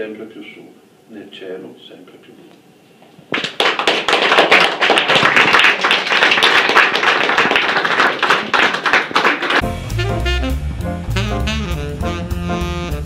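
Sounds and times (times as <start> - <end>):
audience applauding: 3.3 - 9.6.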